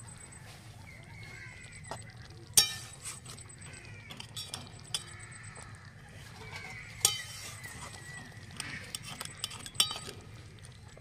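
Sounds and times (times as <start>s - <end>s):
metal spatula clinking on pan: 2.6s - 3.5s, 4.1s - 5.2s, 7.0s - 7.8s, 8.9s - 10.2s.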